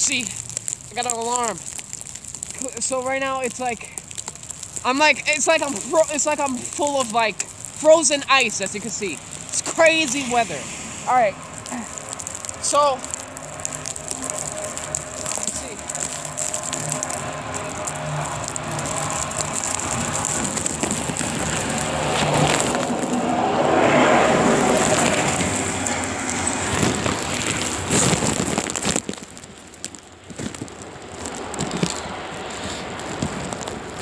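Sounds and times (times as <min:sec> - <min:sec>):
wind rushing over microphone: 0:09.0 - 0:29.4.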